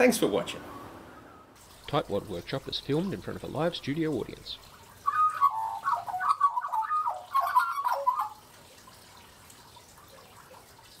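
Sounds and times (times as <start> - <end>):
magpie warbling song: 5.0 - 8.4.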